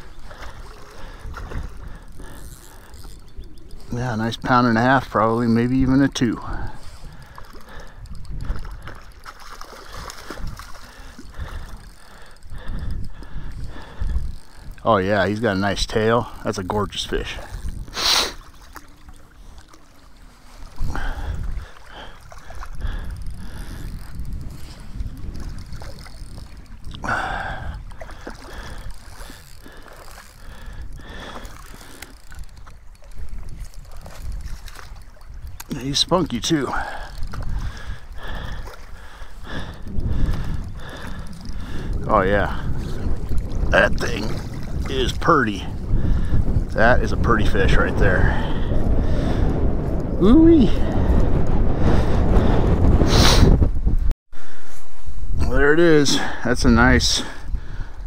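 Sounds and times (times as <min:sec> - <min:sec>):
water splashing and gurgling: 0:00.0 - 0:53.6
wind buffeting microphone: 0:00.0 - 0:58.0.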